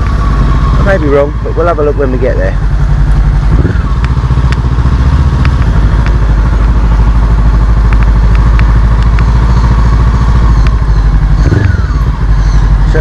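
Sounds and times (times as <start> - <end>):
motorcycle engine pulsing: 0.0 - 13.0
light ticks: 3.9 - 4.7, 5.4 - 6.3, 7.8 - 11.2.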